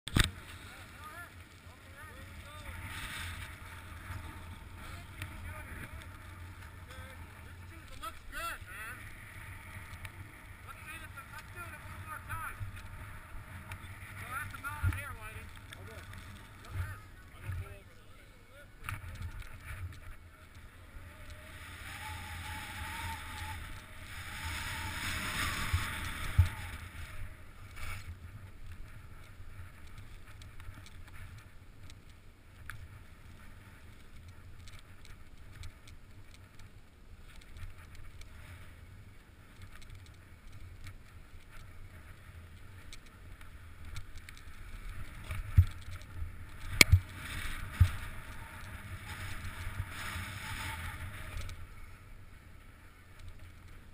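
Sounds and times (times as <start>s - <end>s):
skis scraping over snow: 0.1s - 53.9s
wind rumble on microphone: 18.8s - 36.6s, 37.2s - 53.9s.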